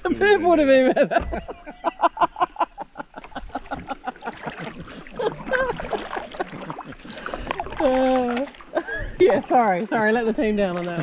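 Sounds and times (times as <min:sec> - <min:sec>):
person laughing: 0:00.0 - 0:06.7.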